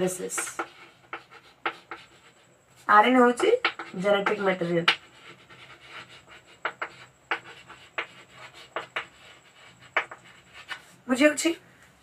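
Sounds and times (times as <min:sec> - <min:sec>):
scratchy writing strokes: 0:00.0 - 0:11.0.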